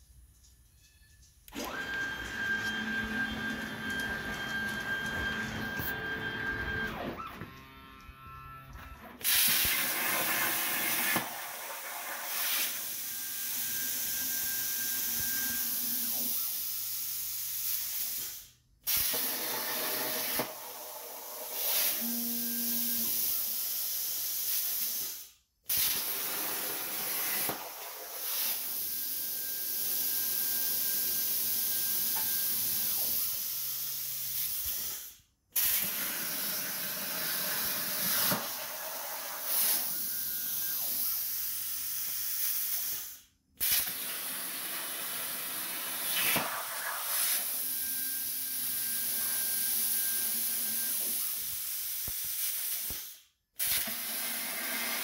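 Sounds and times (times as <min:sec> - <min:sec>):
plasma cutter torch hissing: 0:09.2 - 0:22.1, 0:23.1 - 0:44.0, 0:46.0 - 0:55.0.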